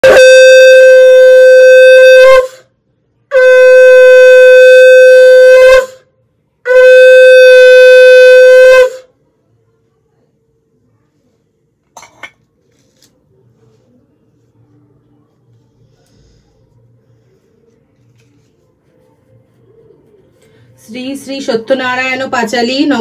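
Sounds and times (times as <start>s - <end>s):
conch shell blasts: 0.0s - 2.6s, 3.3s - 6.0s, 6.7s - 9.1s.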